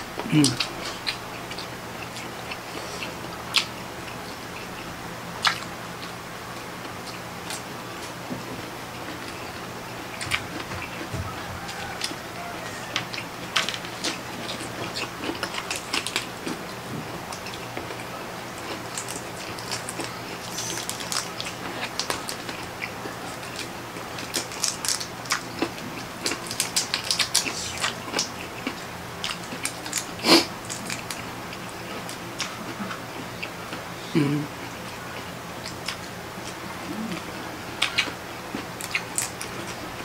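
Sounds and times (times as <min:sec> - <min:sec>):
wet chewing and smacking: 0:04.5 - 0:06.2, 0:12.9 - 0:33.5, 0:35.6 - 0:39.8.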